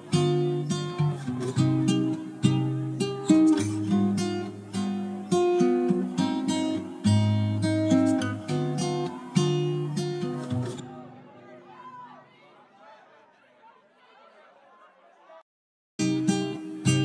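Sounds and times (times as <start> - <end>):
plucked acoustic guitar: 0.0 - 11.3, 16.0 - 17.0.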